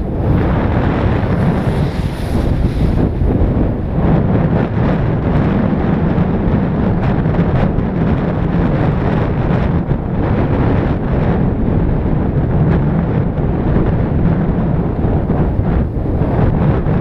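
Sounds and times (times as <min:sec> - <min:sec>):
wind rumble on microphone: 0:00.0 - 0:17.0
skis scraping over snow: 0:00.2 - 0:04.3.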